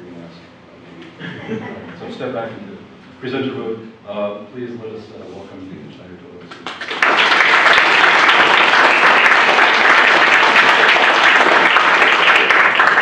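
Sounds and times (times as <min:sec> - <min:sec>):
audience applauding: 0:06.6 - 0:13.0.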